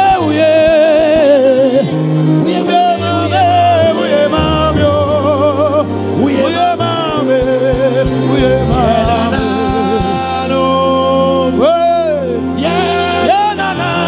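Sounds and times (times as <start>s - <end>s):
man singing gospel song: 0.0s - 14.0s
sustained low instrument chords: 1.7s - 14.0s.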